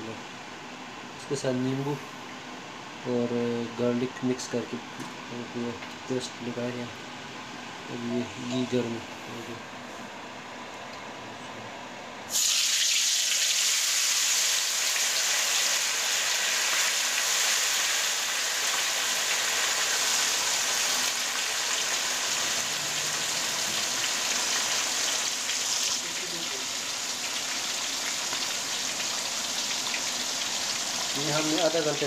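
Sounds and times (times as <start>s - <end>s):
fish frying sizzle: 12.3s - 32.0s.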